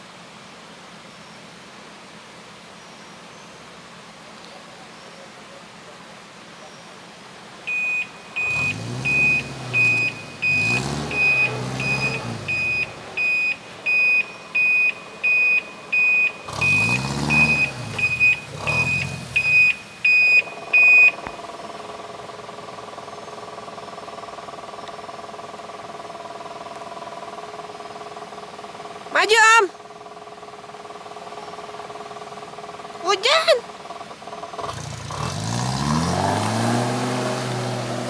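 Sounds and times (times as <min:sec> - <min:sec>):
engine revving: 0:07.7 - 0:14.2, 0:15.3 - 0:22.2, 0:34.3 - 0:38.0
car warning beeper: 0:07.7 - 0:21.5.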